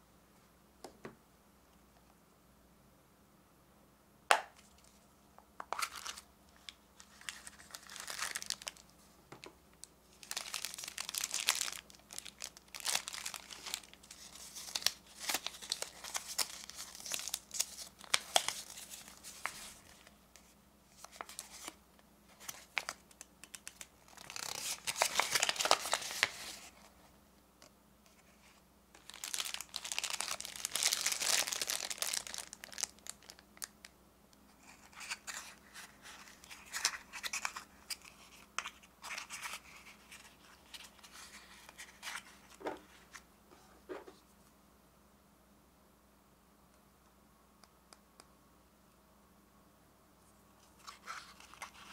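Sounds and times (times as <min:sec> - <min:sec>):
plastic wrapper crinkling: 0:05.7 - 0:08.9, 0:09.8 - 0:20.1, 0:22.4 - 0:26.8, 0:29.0 - 0:33.7, 0:34.6 - 0:42.6, 0:50.8 - 0:51.9.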